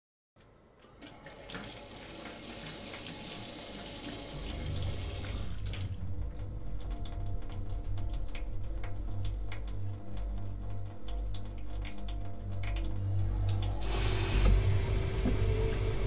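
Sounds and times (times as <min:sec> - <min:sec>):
water splashing and dripping: 0:00.9 - 0:16.0
tap water running: 0:01.0 - 0:16.0
low rumble: 0:04.4 - 0:16.0.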